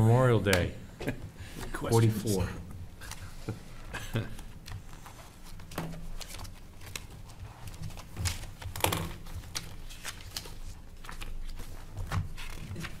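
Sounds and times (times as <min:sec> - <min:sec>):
paper rustling: 0:04.3 - 0:13.0.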